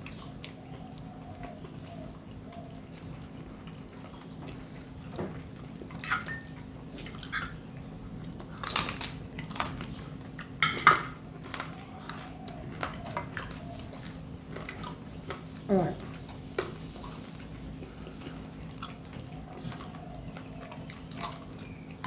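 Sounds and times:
chewing: 0:00.0 - 0:10.6, 0:11.2 - 0:22.0
cutlery clinking on a plate: 0:06.0 - 0:07.6, 0:10.6 - 0:11.2.

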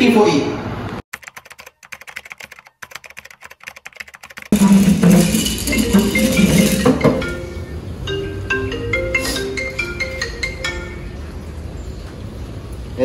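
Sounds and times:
fast keyboard typing: 0:01.1 - 0:07.0
music with mallet-like melody: 0:04.6 - 0:11.2.

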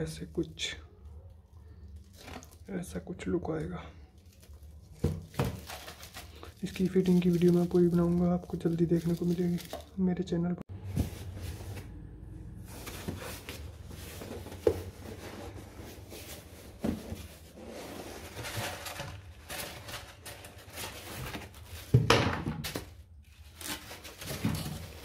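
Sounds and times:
cardboard rustling and scraping: 0:04.9 - 0:07.9, 0:10.7 - 0:25.0.

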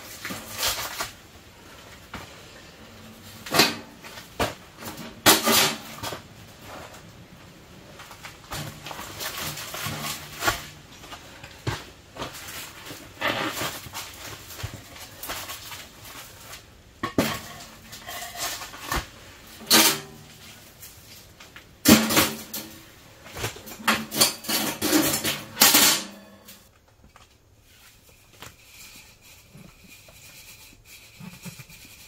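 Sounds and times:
canvas scraping and rustling: 0:00.0 - 0:19.6.

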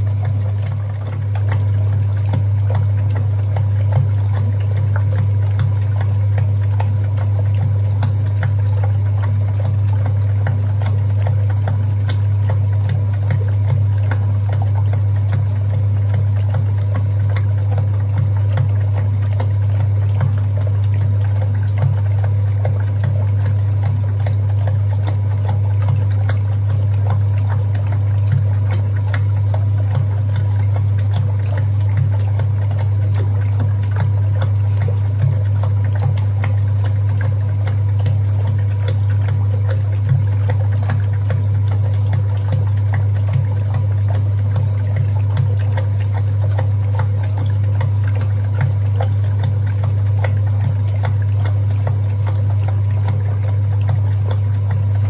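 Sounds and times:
washing machine motor hum: 0:00.0 - 0:55.0
water and laundry sloshing: 0:00.0 - 0:55.0.

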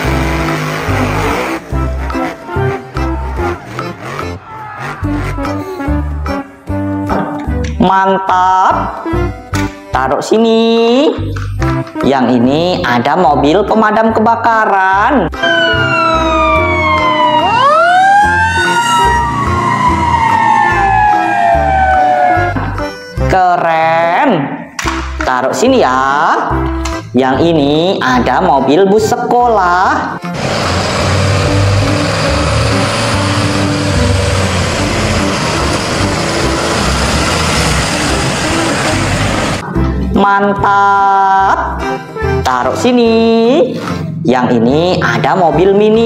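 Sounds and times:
bus engine running: 0:00.0 - 0:04.4, 0:30.2 - 0:39.6
fire engine siren wailing: 0:15.4 - 0:23.0, 0:30.3 - 0:39.6.

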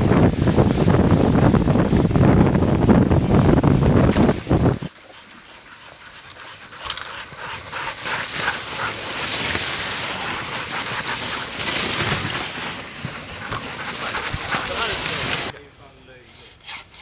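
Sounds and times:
sled runners hissing on snow: 0:00.0 - 0:15.5
dogs panting: 0:04.9 - 0:15.5.

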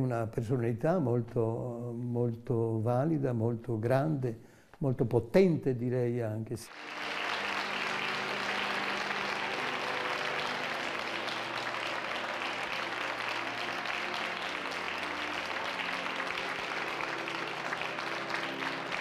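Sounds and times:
congregation applauding: 0:06.7 - 0:19.0.

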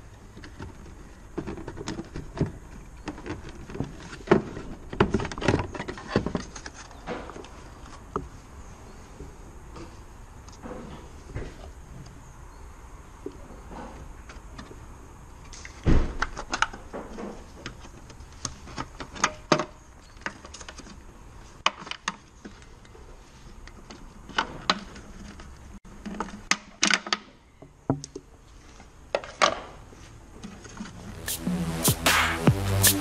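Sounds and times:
electronic music with a beat: 0:31.1 - 0:33.0.

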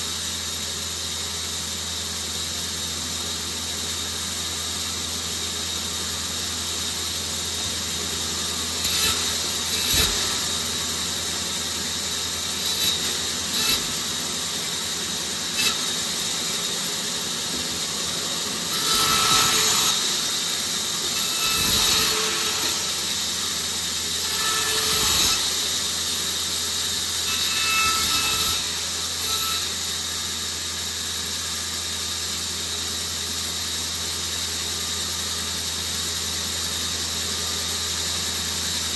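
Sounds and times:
bandsaw cutting wood: 0:07.2 - 0:30.1.

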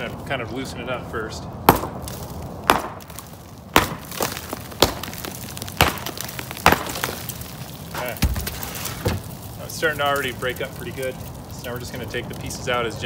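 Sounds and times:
sledgehammer striking bricks: 0:01.6 - 0:07.4, 0:08.0 - 0:09.3.

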